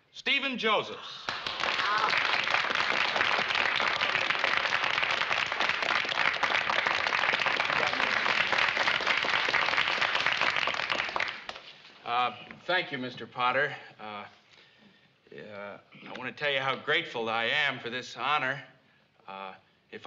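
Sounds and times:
crowd applause: 0:01.2 - 0:11.8.

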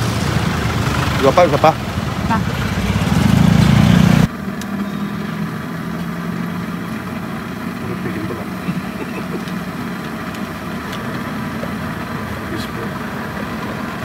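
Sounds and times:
engine idling: 0:04.2 - 0:14.0.

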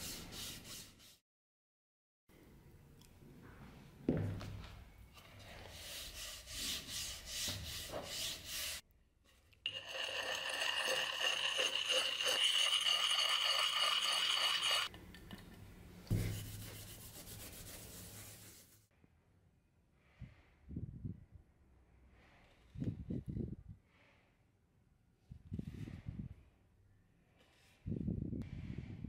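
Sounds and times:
hands rubbing wooden handle: 0:05.4 - 0:08.8, 0:16.1 - 0:18.8
sharpening stone scraping axe: 0:09.7 - 0:14.9.

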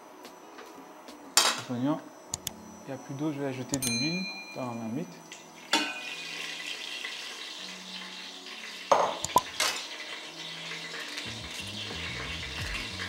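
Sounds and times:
oil sizzling in a hot pot: 0:05.1 - 0:13.0.

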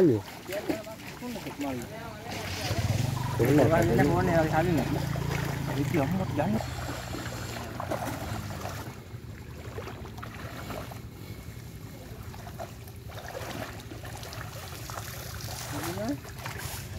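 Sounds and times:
water sloshing and splashing: 0:00.0 - 0:16.9.

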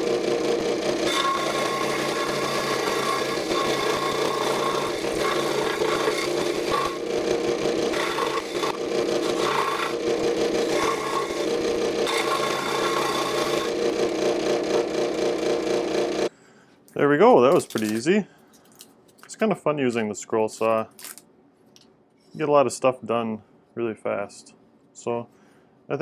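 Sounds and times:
scroll saw cutting wood: 0:00.0 - 0:16.3.

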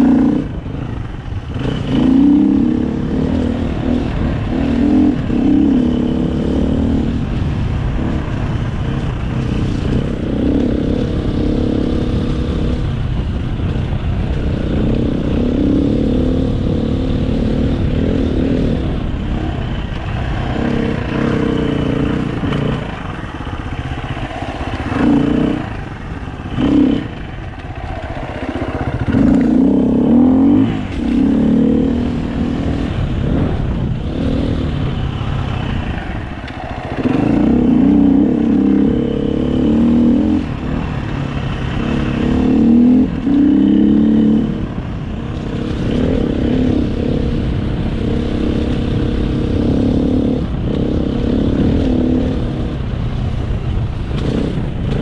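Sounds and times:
dirt bike engine accelerating: 0:00.0 - 0:55.0.

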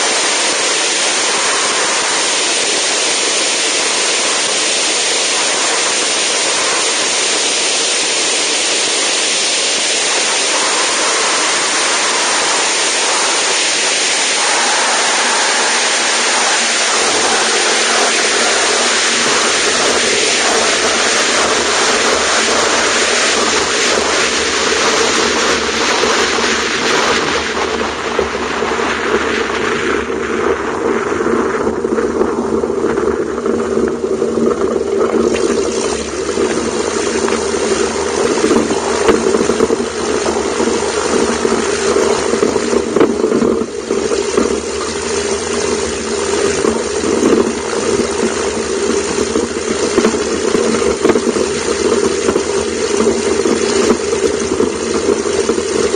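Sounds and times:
hiss of air and rolling: 0:00.0 - 0:30.5, 0:34.6 - 0:55.9
light aircraft engine idling: 0:00.0 - 0:55.9.

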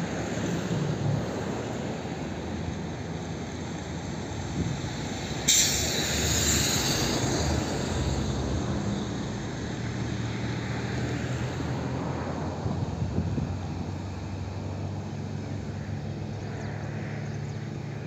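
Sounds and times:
jet engines rumbling: 0:00.0 - 0:11.3
sudden hiss: 0:05.5 - 0:08.2.

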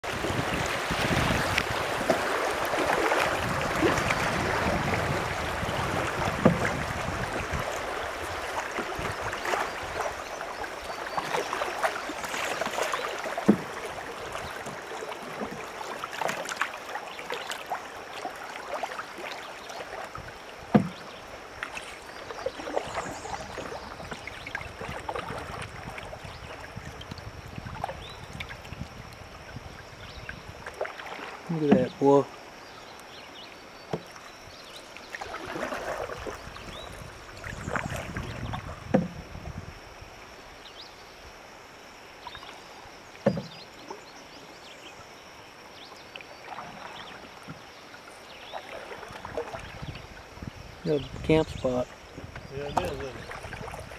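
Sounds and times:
river water rushing and splashing: 0:00.0 - 0:53.9.

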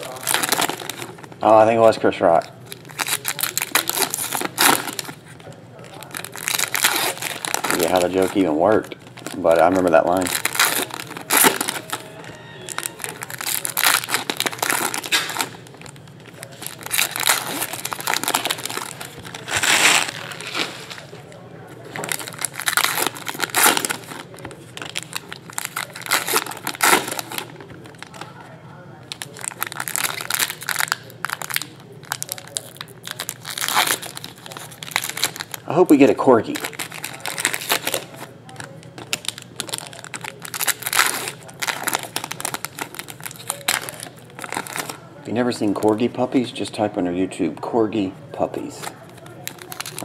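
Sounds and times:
foil wrappers crinkling: 0:00.0 - 0:46.9, 0:48.4 - 0:50.0.

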